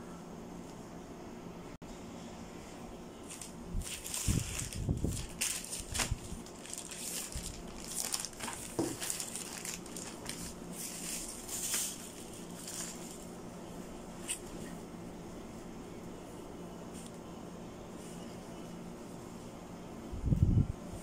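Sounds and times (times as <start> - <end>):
plastic bags crinkling: 3.2 - 13.4.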